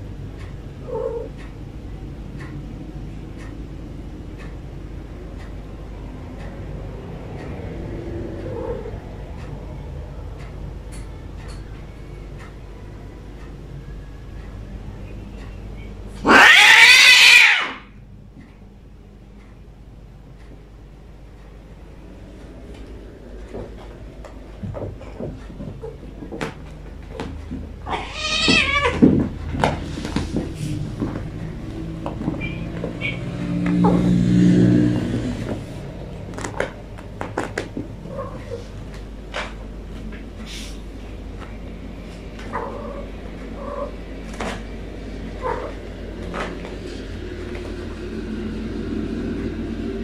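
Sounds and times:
steady low hum: 0.0 - 50.0
cat meowing: 16.2 - 17.9, 27.8 - 29.1
cats moving on carpet: 22.4 - 33.8.

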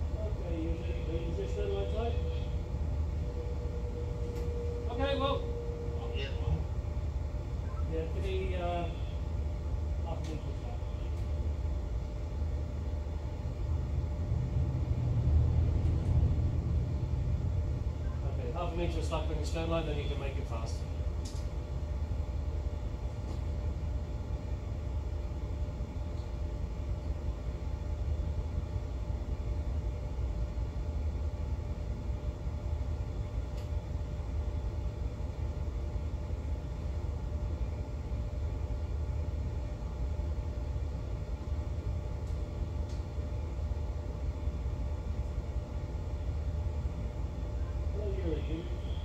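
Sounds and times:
ship engines idling: 0.0 - 21.3
faint even hum: 0.0 - 49.0.

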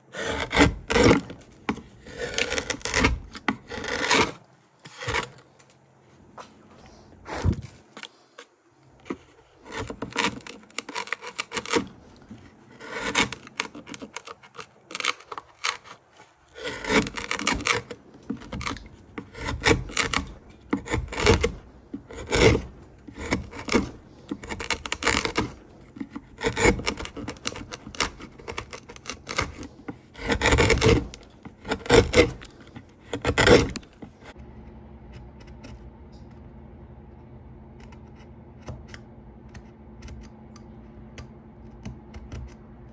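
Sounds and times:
gouge scraping wood: 0.0 - 5.4, 9.0 - 35.9
low steady hum: 0.0 - 42.9.

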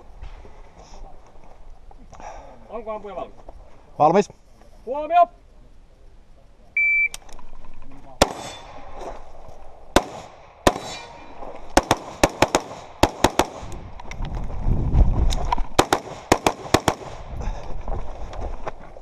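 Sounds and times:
rifle firing: 8.2 - 8.7, 9.9 - 13.8, 15.8 - 17.3.

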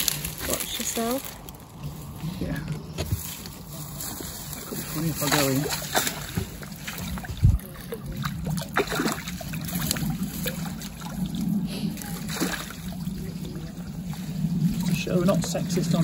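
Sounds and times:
steady low hum: 0.0 - 16.0
trickling water: 0.0 - 16.0
fish splashing in a net: 4.5 - 13.3.

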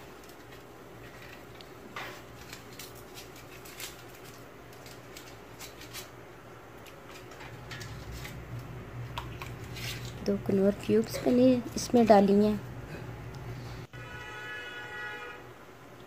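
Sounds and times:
foil wrappers crinkling: 0.0 - 10.4
steady low hum: 0.0 - 14.0.

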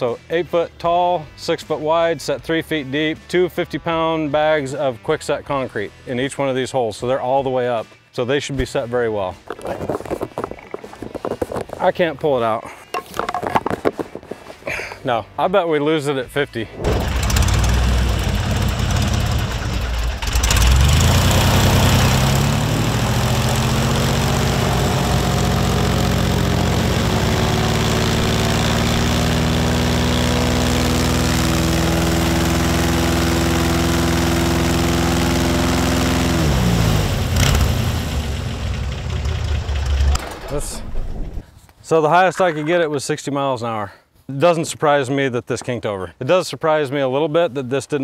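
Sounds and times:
airboat engine and propeller drone: 16.9 - 40.0.

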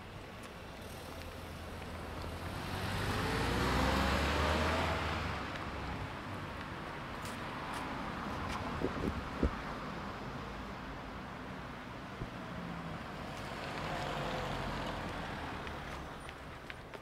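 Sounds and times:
car engine accelerating: 2.2 - 5.6.

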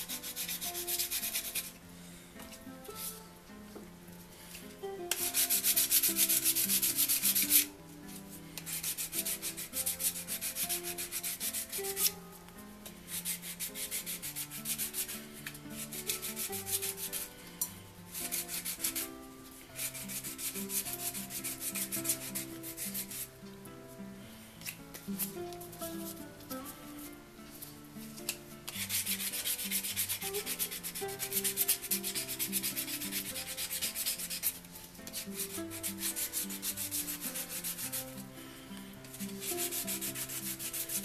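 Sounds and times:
sandpaper rubbing on wood: 0.0 - 1.8, 5.1 - 7.7, 8.7 - 12.2, 13.1 - 17.3, 18.1 - 19.1, 19.8 - 23.3, 28.7 - 38.1, 39.2 - 41.0.

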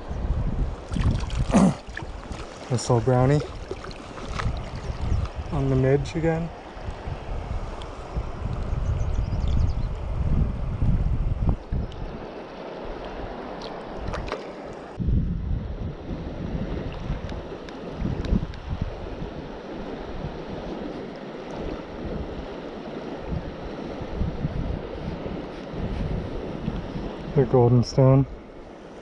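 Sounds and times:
wind buffeting microphone: 0.0 - 29.0
light water splashes: 0.8 - 5.5, 11.7 - 15.0
river rushing over gravel: 0.9 - 6.2.

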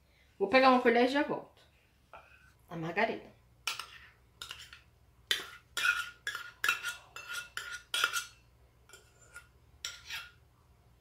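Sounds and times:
metal spoon scraping a bowl: 3.6 - 10.4.

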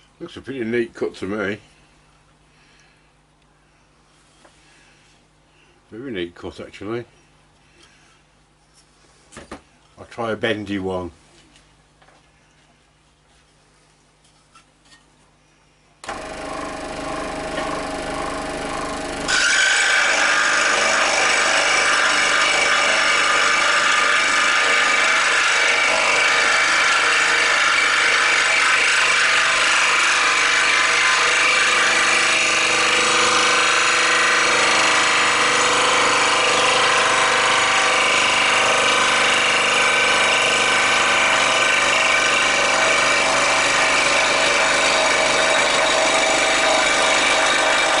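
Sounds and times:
scroll saw running: 16.0 - 48.0
saw blade cutting wood: 16.1 - 48.0.

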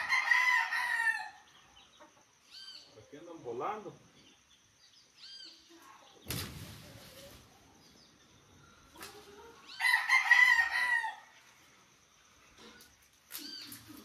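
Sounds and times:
rooster crowing: 0.0 - 1.4, 9.7 - 11.4
brief rustling crash: 6.2 - 7.5.

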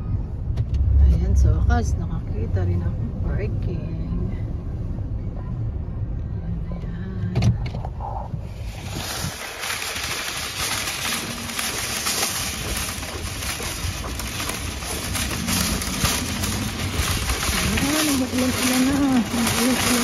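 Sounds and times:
wind on microphone: 7.5 - 20.0
shopping cart rattling: 8.6 - 20.0.

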